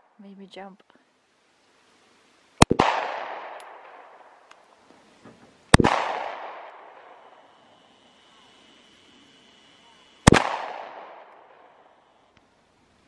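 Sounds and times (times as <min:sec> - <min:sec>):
pistol shots: 0:02.6 - 0:04.3, 0:05.7 - 0:07.3, 0:10.2 - 0:11.8
gunshot echo: 0:02.6 - 0:04.4, 0:05.7 - 0:07.4, 0:10.2 - 0:12.0.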